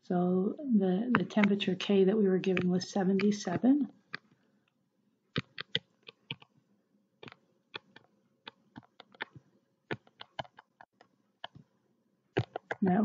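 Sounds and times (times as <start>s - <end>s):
pen tapping on whiteboard: 1.1s - 1.6s, 5.4s - 6.5s, 7.2s - 11.7s, 12.4s - 12.8s.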